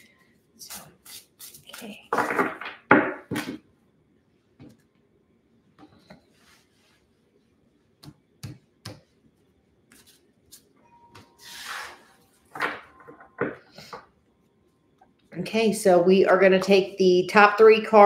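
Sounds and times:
cards sliding across tabletop: 11.4s - 12.2s.

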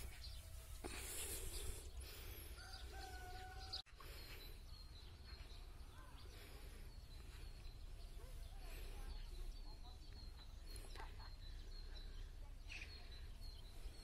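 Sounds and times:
small birds chirping: 0.0s - 14.0s
distant chicken call: 2.6s - 3.9s.

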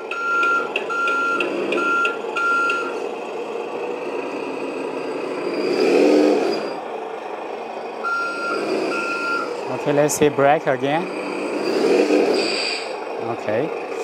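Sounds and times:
reversing beeper: 0.0s - 3.0s, 8.0s - 9.6s
diesel truck engine running: 0.0s - 14.0s
hissing whoosh: 11.4s - 13.0s.

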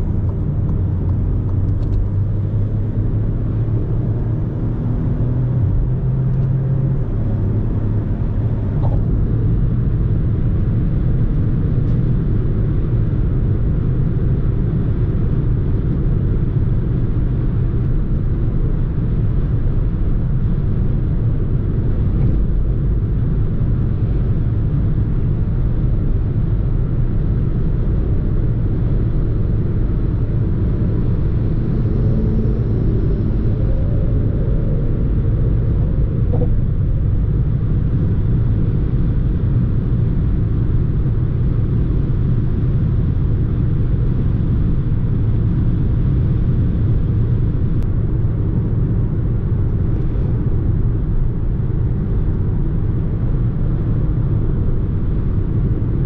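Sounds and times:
tyre and road rumble: 0.0s - 11.2s
car engine running: 0.0s - 56.0s.

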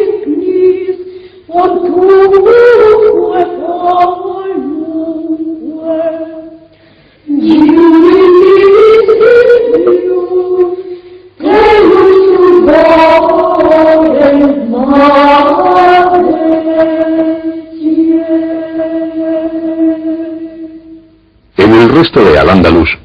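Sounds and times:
voices singing plainchant: 11.4s - 20.7s.

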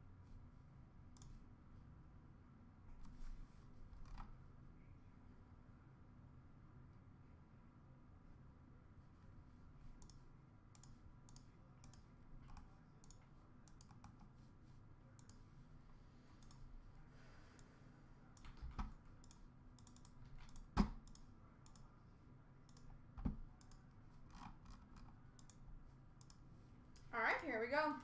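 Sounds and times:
typing on computer keyboard: 18.4s - 21.9s.

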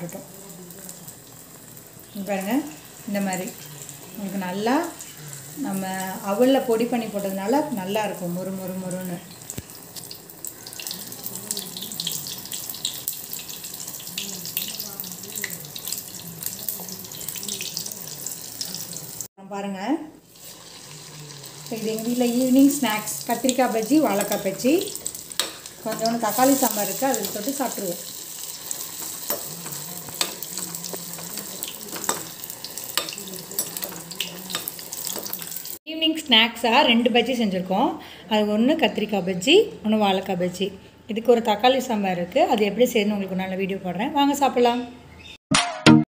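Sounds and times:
food deep-frying in bubbling oil: 0.0s - 19.3s, 20.3s - 35.8s.

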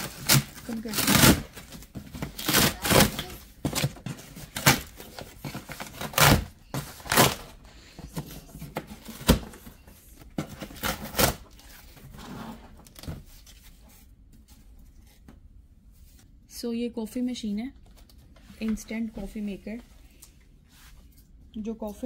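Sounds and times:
cardboard tearing: 0.0s - 7.5s, 10.6s - 11.8s.

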